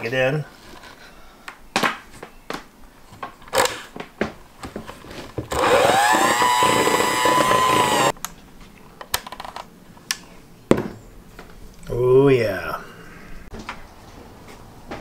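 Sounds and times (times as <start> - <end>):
electric hand mixer whining: 5.5 - 8.1.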